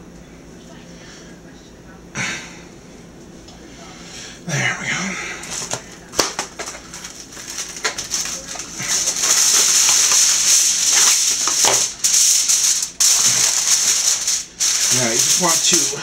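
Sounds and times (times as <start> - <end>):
aluminum foil crinkling: 5.3 - 16.0.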